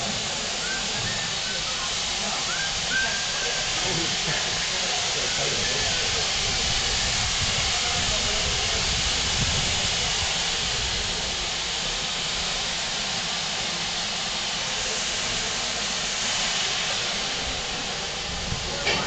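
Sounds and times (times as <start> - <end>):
steam hissing from locomotive: 0.0 - 19.0.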